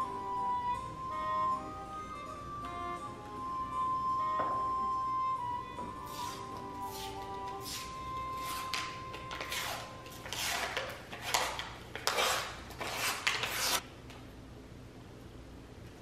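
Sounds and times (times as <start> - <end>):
paper label ripping: 10.2 - 13.8.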